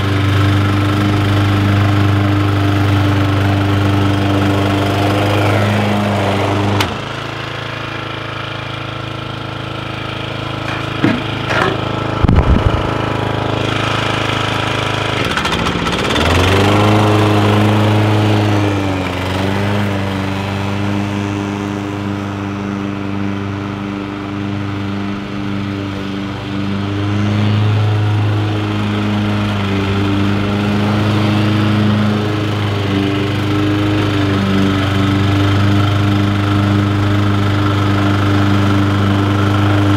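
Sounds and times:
lawn mower running: 0:00.0 - 0:39.9
sharp knocks: 0:10.7 - 0:12.6.

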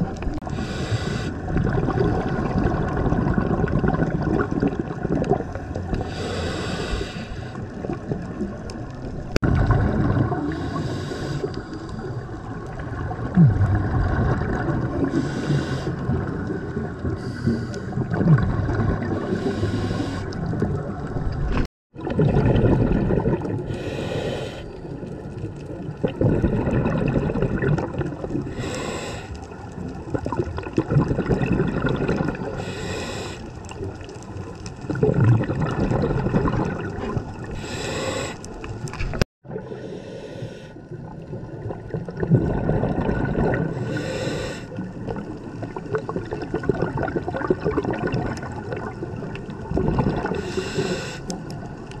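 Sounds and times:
bubbling exhalations underwater: 0:00.0 - 0:06.3, 0:07.6 - 0:39.8, 0:40.8 - 0:52.0
regulator inhalation hiss: 0:00.5 - 0:01.3, 0:06.1 - 0:07.6, 0:10.5 - 0:11.8, 0:15.2 - 0:16.0, 0:19.3 - 0:20.4, 0:23.7 - 0:24.8, 0:28.5 - 0:29.4, 0:32.6 - 0:33.5, 0:37.6 - 0:38.6, 0:39.8 - 0:40.7, 0:43.8 - 0:44.7, 0:50.4 - 0:51.3.

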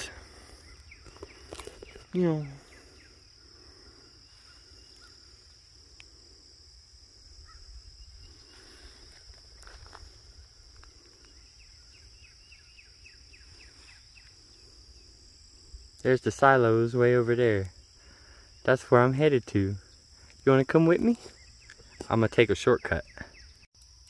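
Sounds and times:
bird chirping: 0:00.0 - 0:05.4, 0:11.2 - 0:14.7, 0:20.9 - 0:23.7
insects droning: 0:00.0 - 0:24.0
footsteps through grass: 0:08.3 - 0:11.1.

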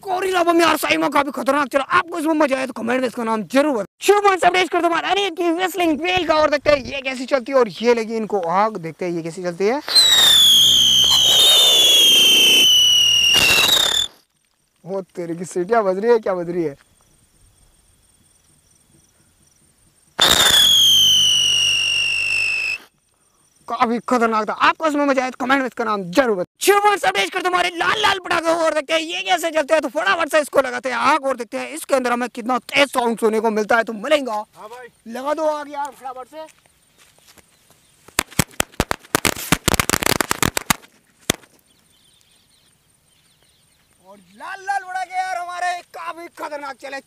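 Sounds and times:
hiss of spraying sparks: 0:09.8 - 0:14.2
firework whistle falling in pitch: 0:09.9 - 0:14.2, 0:20.2 - 0:22.9
firecrackers banging: 0:20.2 - 0:22.8, 0:38.1 - 0:41.6.

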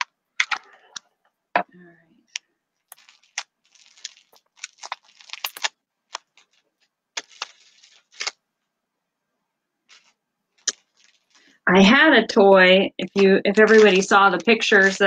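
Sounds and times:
burlap rustling and crackling: 0:02.8 - 0:08.4, 0:09.9 - 0:11.6, 0:13.0 - 0:15.0.

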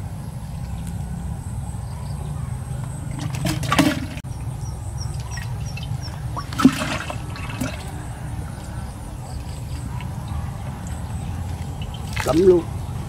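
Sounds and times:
water splashing and sloshing: 0:02.8 - 0:13.0.

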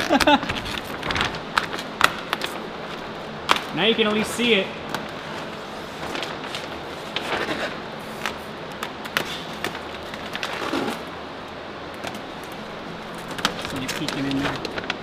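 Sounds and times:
foil packaging crinkling and tearing: 0:00.0 - 0:04.4, 0:12.0 - 0:15.0.

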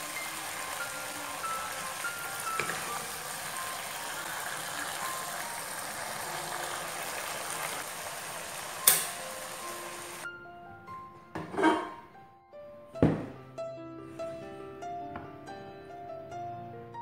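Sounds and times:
meat sizzling in frying pan: 0:00.0 - 0:10.3
stove knob click: 0:08.8 - 0:09.2.

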